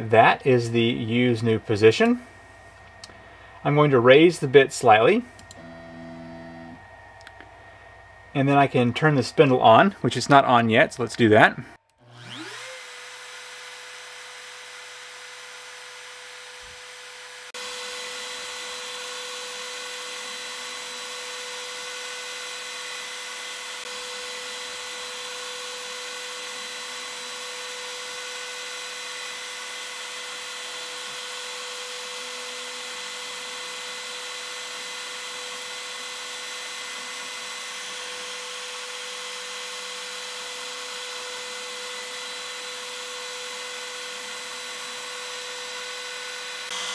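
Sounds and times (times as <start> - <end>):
router spindle whining: 5.4 - 7.5, 11.9 - 46.9
router bit carving wood: 5.5 - 6.8, 12.0 - 46.9.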